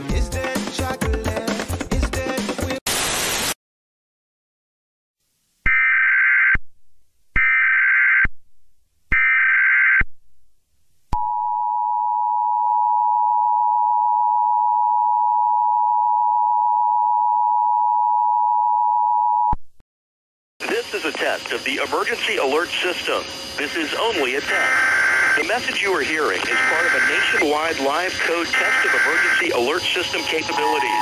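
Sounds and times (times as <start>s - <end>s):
buzzy digital data tones: 20.8s - 31.0s
steady two-tone alert signal: 22.4s - 31.0s.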